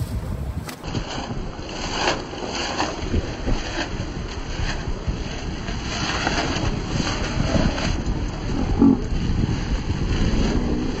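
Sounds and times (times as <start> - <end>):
wind buffeting microphone: 0.0 - 11.0
water rushing along hull: 0.8 - 11.0.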